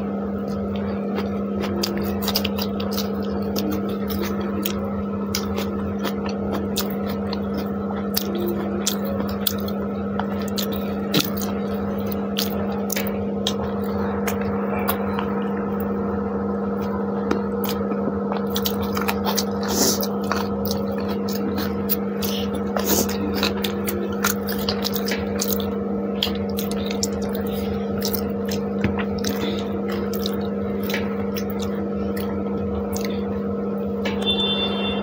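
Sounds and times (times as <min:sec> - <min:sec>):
steady hum: 0:00.0 - 0:35.0
chewing: 0:00.4 - 0:15.9, 0:16.8 - 0:33.4.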